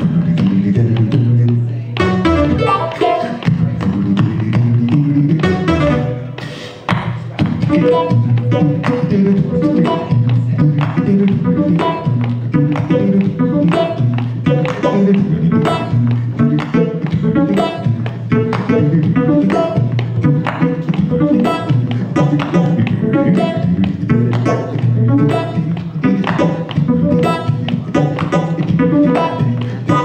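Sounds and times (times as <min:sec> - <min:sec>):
man singing a cappella: 0:00.0 - 0:01.8, 0:02.6 - 0:06.2, 0:14.3 - 0:30.0.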